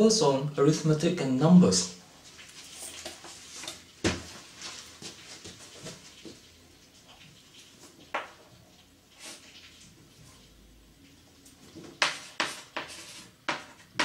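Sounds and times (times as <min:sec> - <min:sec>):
chalk tapping on blackboard: 0:12.0 - 0:14.0.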